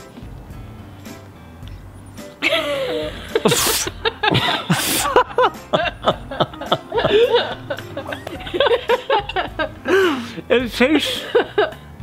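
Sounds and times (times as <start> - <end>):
quiet background music: 0.0 - 12.0
person laughing: 2.4 - 10.4, 11.0 - 11.8.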